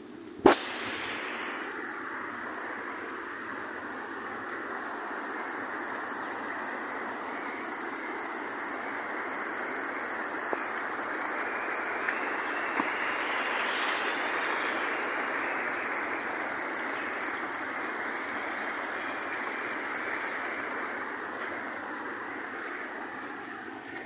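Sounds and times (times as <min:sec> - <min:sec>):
rushing runoff water: 0:00.5 - 0:24.0.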